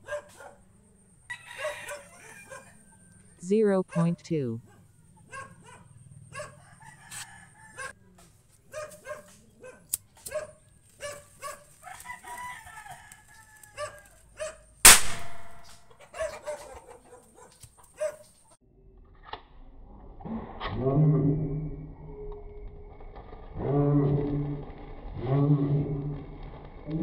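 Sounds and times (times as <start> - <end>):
firecracker bang: 14.8 - 15.8.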